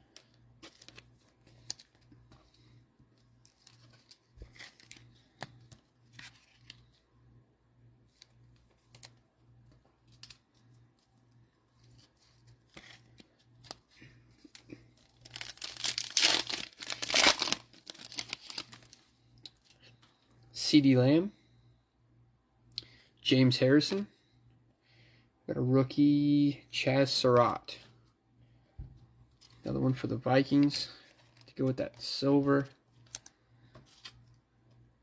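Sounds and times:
cards and wrappers rustling: 0.0s - 7.0s, 8.1s - 20.0s, 29.3s - 34.4s
foil pack tearing and crinkling: 15.1s - 19.0s.

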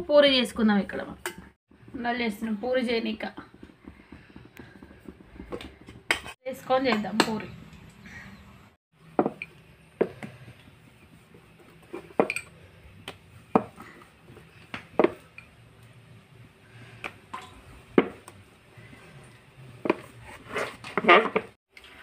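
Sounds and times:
rolling pin rolling dough: 1.7s - 6.4s.

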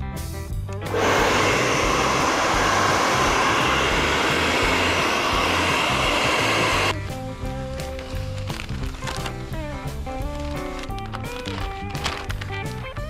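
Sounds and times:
hot-air blower rushing: 0.8s - 7.0s.

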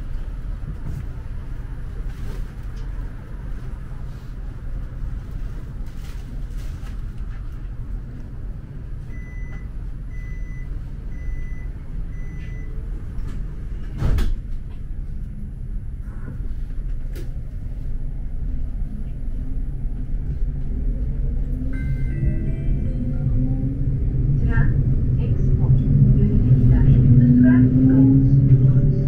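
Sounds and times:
tram humming: 0.0s - 29.0s
short warning beeps: 21.7s - 23.3s.

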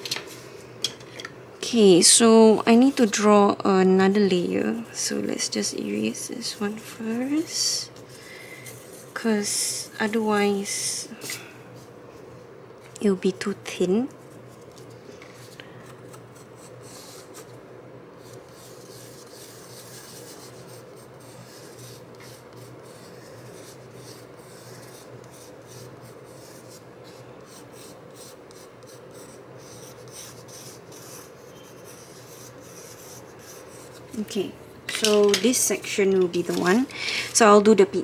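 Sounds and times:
pencil scratching on cardboard: 18.2s - 34.3s.

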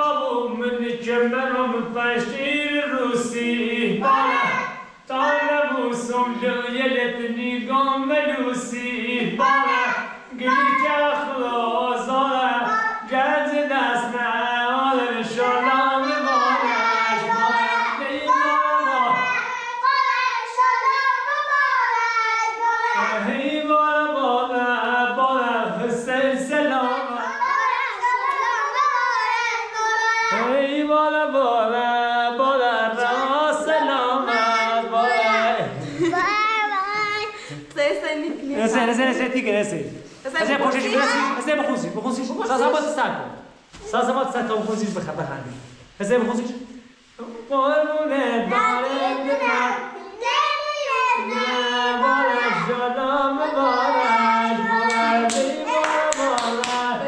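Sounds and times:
voices singing with children: 0.0s - 37.6s, 47.2s - 57.0s
hand claps: 54.9s - 56.9s.

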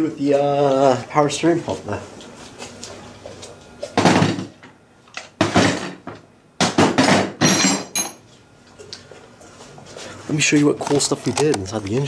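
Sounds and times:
knocks and clattering thuds: 4.0s - 4.6s, 5.4s - 8.0s.

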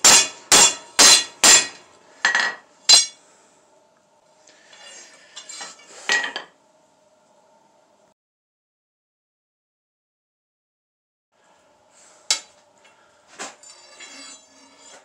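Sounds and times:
hammer striking metal on anvil: 0.0s - 3.2s.

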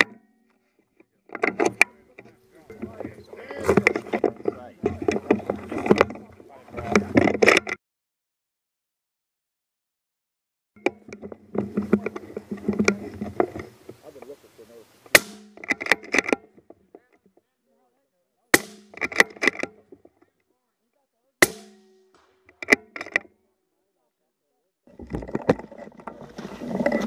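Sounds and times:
suppressed rifle shots: 15.1s - 15.7s, 21.4s - 22.9s.

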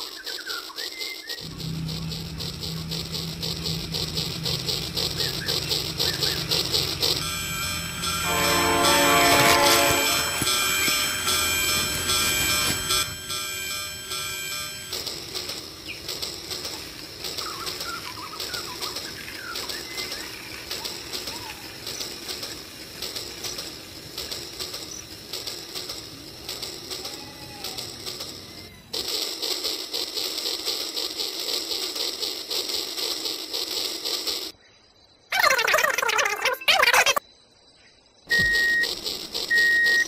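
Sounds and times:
birds chirping: 0.0s - 15.0s, 15.7s - 22.7s
toy train motor whirring: 0.0s - 34.5s, 38.4s - 40.0s.

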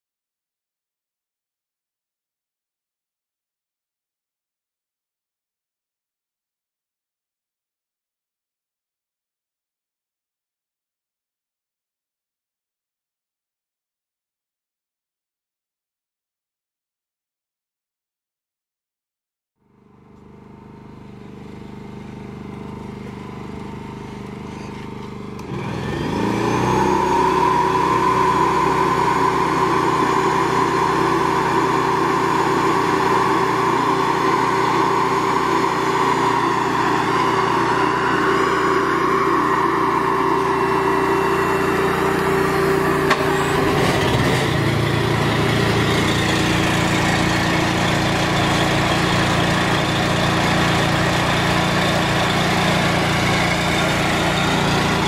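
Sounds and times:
machinery running: 24.2s - 55.0s
machine whine: 24.5s - 55.0s.

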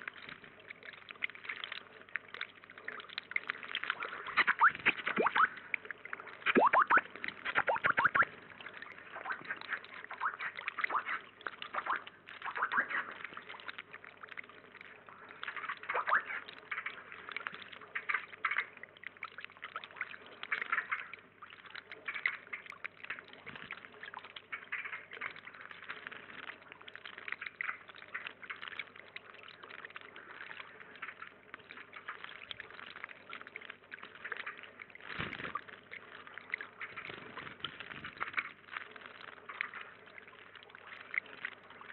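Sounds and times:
birds splashing in water: 0.0s - 41.9s
water trickling: 0.0s - 41.9s.

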